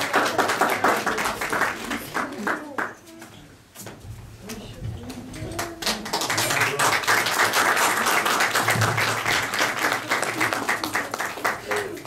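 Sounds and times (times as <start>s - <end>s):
audience applauding: 0.0s - 2.9s, 5.6s - 12.0s.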